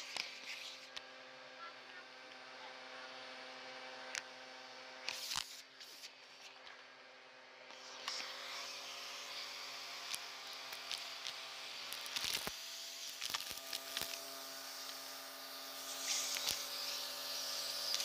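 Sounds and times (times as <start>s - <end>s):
vacuum cleaner running: 0.0s - 18.0s
debris clicking in vacuum hose: 10.0s - 15.1s, 15.9s - 17.0s.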